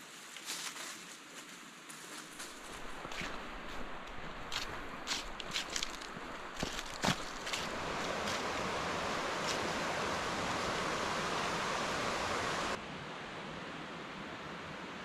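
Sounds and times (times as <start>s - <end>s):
stream flowing over rocks: 2.6s - 12.8s.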